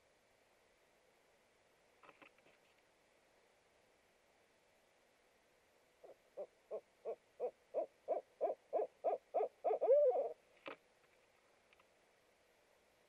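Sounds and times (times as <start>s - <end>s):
owl hooting: 6.0s - 10.4s.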